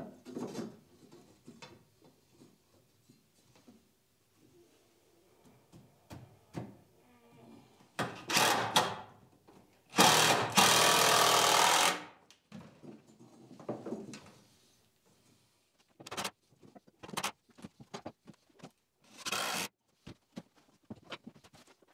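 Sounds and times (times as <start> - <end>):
power drill driving screws: 8.3 - 8.9, 10.0 - 12.1, 19.1 - 19.7.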